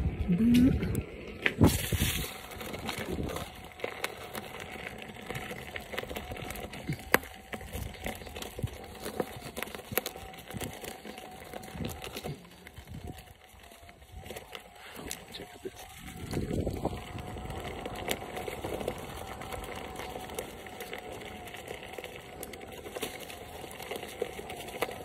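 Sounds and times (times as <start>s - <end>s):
tyre crunching over dry leaves: 1.0s - 25.0s.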